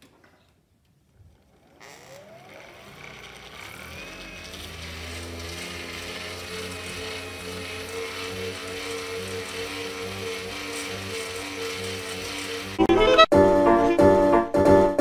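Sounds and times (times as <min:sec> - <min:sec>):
motor whine rising in pitch: 0:01.3 - 0:13.3
background music with held notes: 0:12.8 - 0:15.0.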